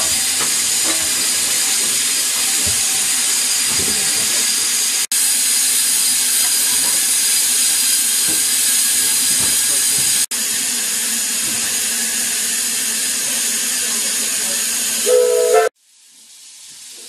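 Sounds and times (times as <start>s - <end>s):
steam hissing from locomotive: 0.0s - 17.0s.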